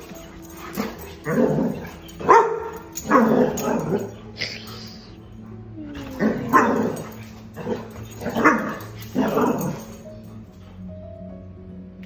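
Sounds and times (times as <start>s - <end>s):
dog barking: 0.8s - 4.2s, 6.2s - 9.9s.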